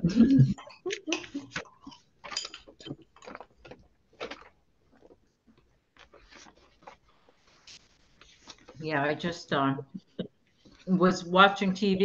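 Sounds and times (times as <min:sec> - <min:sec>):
mouth or handling noises: 0:00.2 - 0:09.3.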